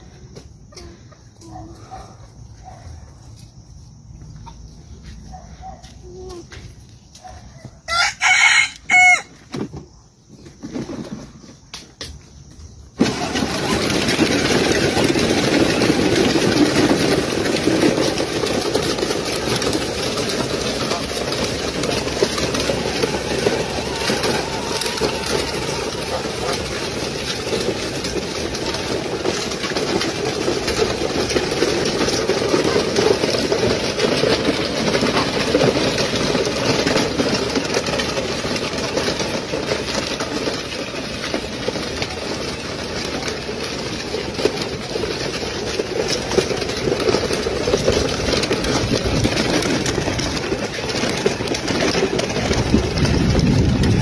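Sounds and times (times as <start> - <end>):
electric toy tractor running: 12.9 - 54.0.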